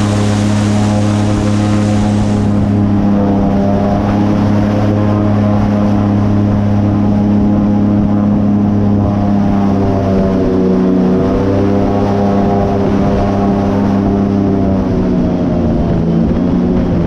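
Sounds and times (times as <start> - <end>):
airboat engine and propeller drone: 0.0 - 17.0.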